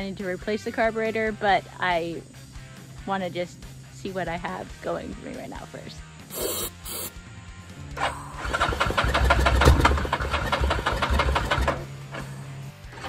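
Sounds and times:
engine cranking on starter: 0:08.0 - 0:13.0
fast even engine chugging: 0:08.4 - 0:11.8.

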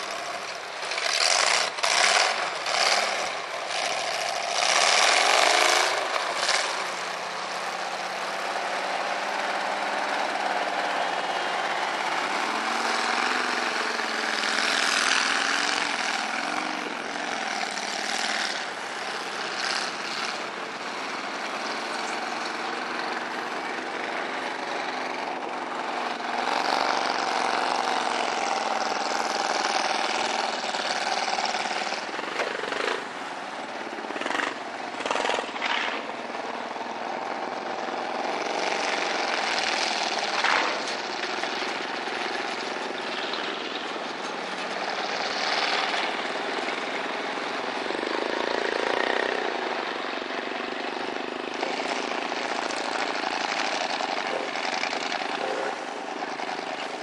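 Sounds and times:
truck engine revving: 0:00.0 - 0:57.0.

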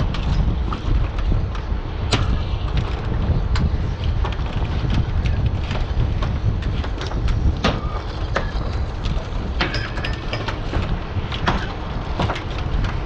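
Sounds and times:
boat engine rumble: 0:00.0 - 0:13.0
wind on microphone: 0:00.0 - 0:13.0.

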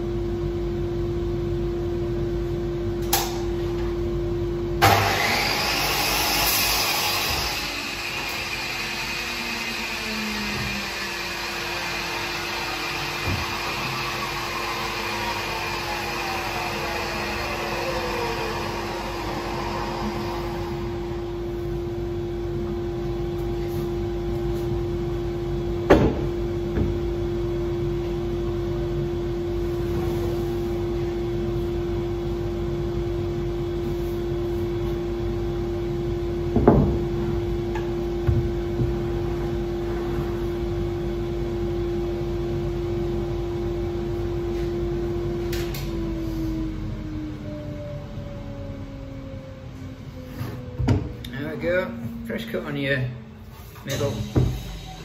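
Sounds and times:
electric motor humming and whining: 0:04.8 - 0:23.2.

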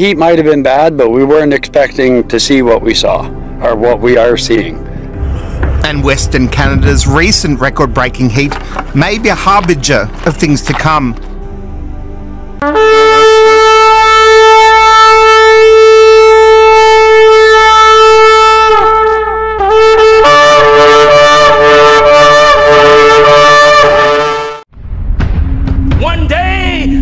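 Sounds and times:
trumpet blasts: 0:12.6 - 0:24.7.

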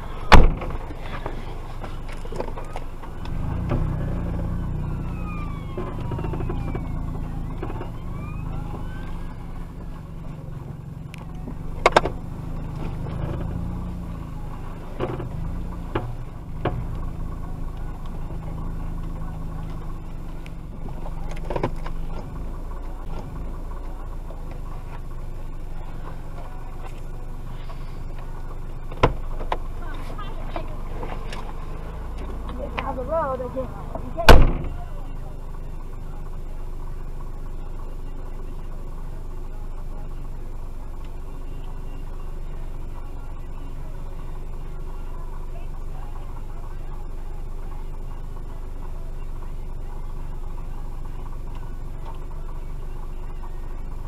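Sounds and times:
low engine rumble: 0:00.0 - 0:54.0
fire engine siren wailing: 0:02.6 - 0:11.8.

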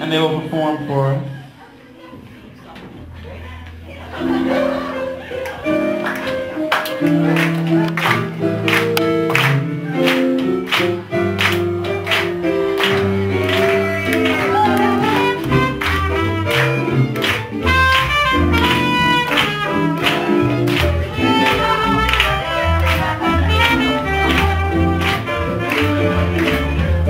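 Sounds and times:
bass line: 0:07.0 - 0:27.0
drums beat: 0:07.1 - 0:27.0
saxophone melody: 0:07.2 - 0:27.0.

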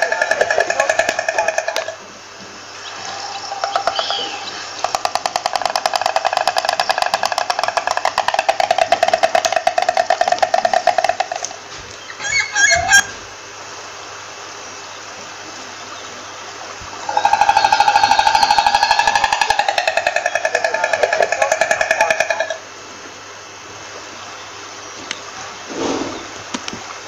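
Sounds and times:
stork clattering its bill: 0:00.0 - 0:02.0, 0:03.5 - 0:13.0, 0:17.1 - 0:22.6
squeaky gliding calls: 0:02.8 - 0:05.0, 0:12.0 - 0:13.2, 0:17.0 - 0:22.7.

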